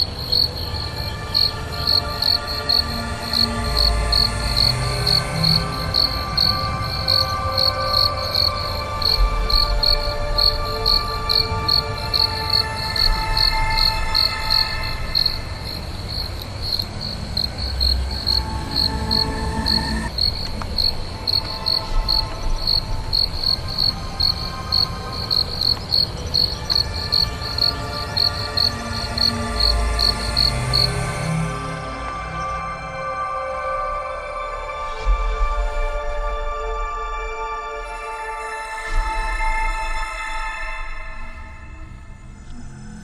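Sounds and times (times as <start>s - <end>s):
cricket chirping: 0.0s - 33.0s.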